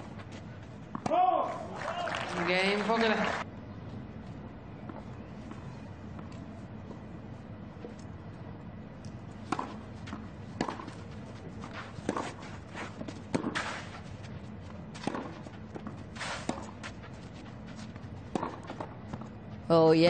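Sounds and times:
tennis racket hitting ball: 9.5s - 11.0s, 11.7s - 13.9s, 15.0s - 17.0s, 18.2s - 19.3s.

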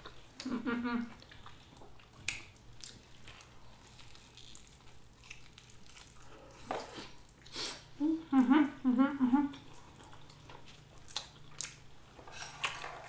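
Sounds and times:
wet chewing and mouth clicks: 1.1s - 7.6s, 9.6s - 12.8s.

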